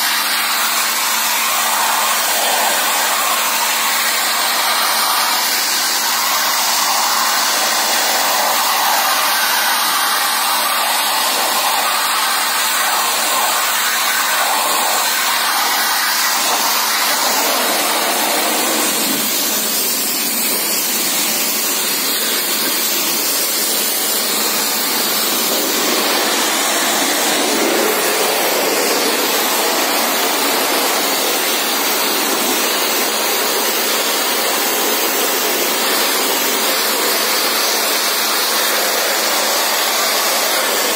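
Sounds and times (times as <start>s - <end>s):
pressure washer jet hissing: 0.0s - 40.9s.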